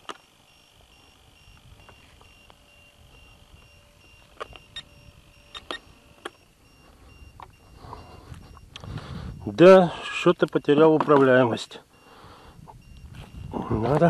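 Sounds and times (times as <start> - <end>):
rapid high-pitched beeping alarm: 0.0 - 14.0
handling clicks and knocks: 10.5 - 11.4.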